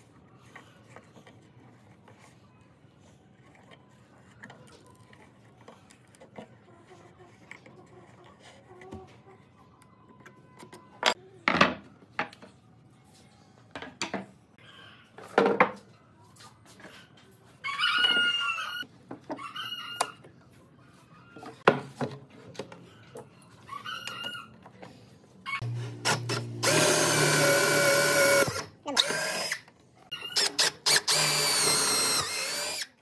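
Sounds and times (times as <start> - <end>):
rooster crowing: 17.6 - 18.8.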